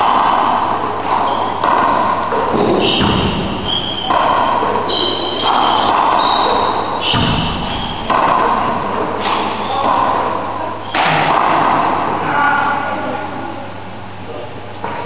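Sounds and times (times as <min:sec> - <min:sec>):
rubber ball hits echoing in court: 0:00.0 - 0:12.2.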